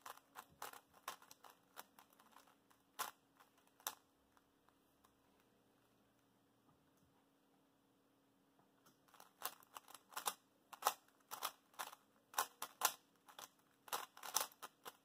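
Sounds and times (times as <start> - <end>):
speed cube clacking turns: 0.0 - 4.0, 9.1 - 15.0.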